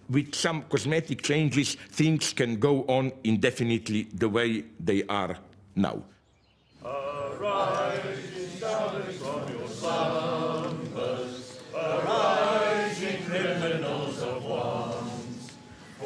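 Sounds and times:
choir singing: 6.8s - 16.0s.

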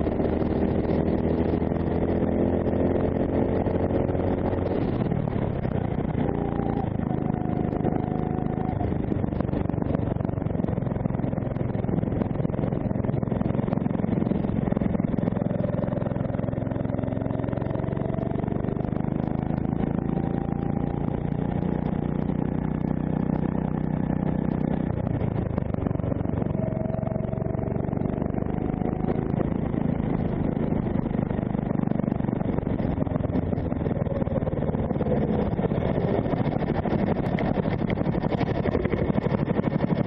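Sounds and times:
kart engine accelerating: 22.2s - 40.0s.

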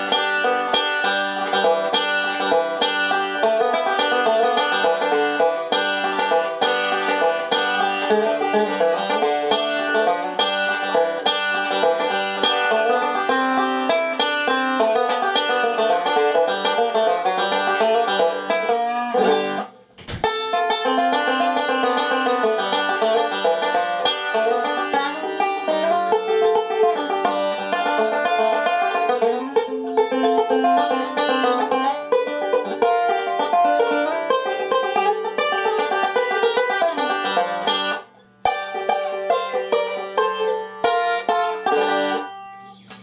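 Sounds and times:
banjo picking bluegrass: 0.0s - 43.0s.

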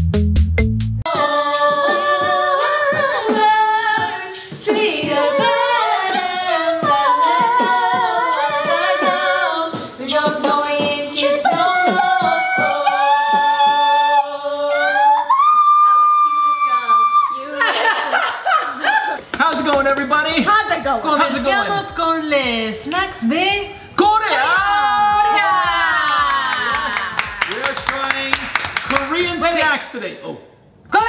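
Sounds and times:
a cappella singing: 1.1s - 16.7s.

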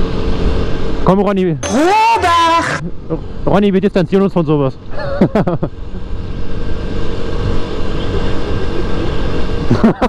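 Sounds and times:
motorcycle engine running: 5.6s - 10.0s.

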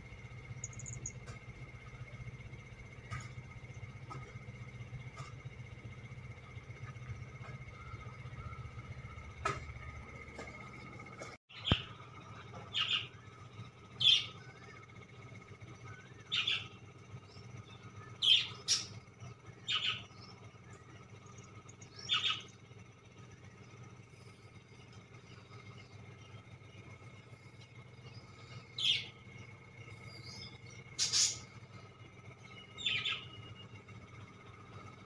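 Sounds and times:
bird chirping calls: 0.6s - 1.4s, 11.5s - 13.2s, 15.8s - 22.7s, 24.5s - 34.2s.

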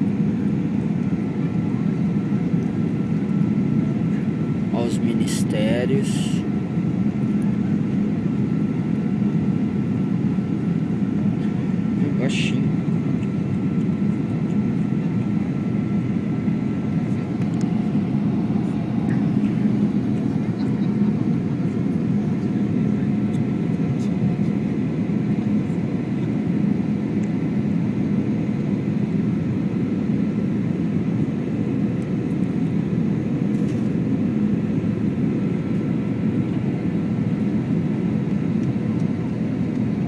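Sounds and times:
aircraft cabin engine drone: 0.0s - 40.0s.

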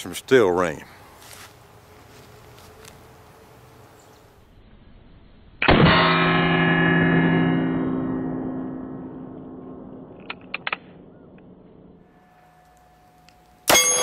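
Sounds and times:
steel target ringing: 5.6s - 10.2s, 11.0s - 14.0s.

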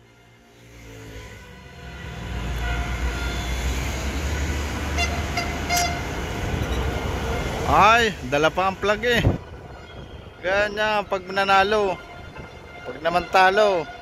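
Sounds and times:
bus engine rumble: 1.9s - 10.4s.

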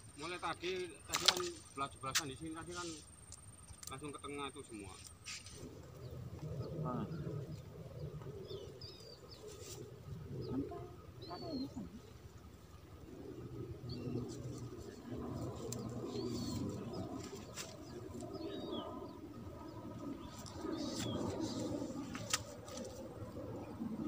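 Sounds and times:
birds cooing: 5.6s - 24.0s.

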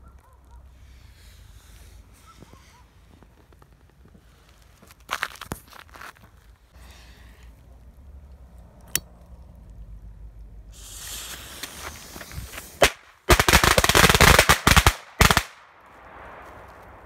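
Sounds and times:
fuse hissing: 10.7s - 12.8s.

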